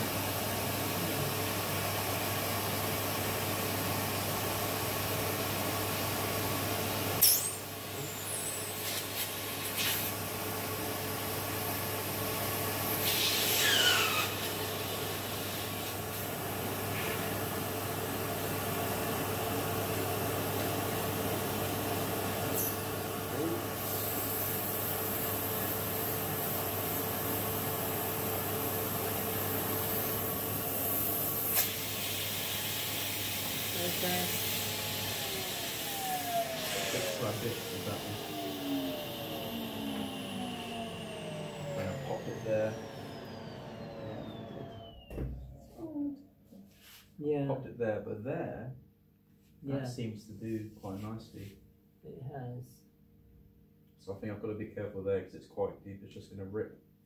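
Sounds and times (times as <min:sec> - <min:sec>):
vacuum cleaner running: 0:00.0 - 0:46.0
heat gun blowing: 0:12.9 - 0:14.6, 0:29.9 - 0:45.2.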